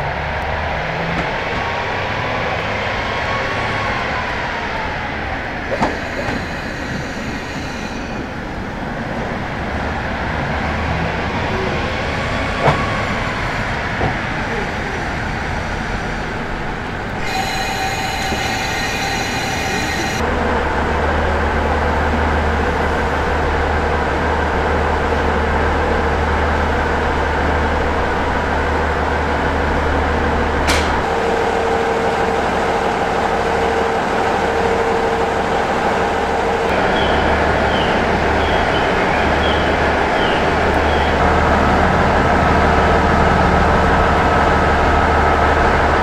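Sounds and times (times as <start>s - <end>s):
diesel railcar engine idling: 5.0s - 46.0s
high steady tones: 5.7s - 8.5s, 17.2s - 20.2s.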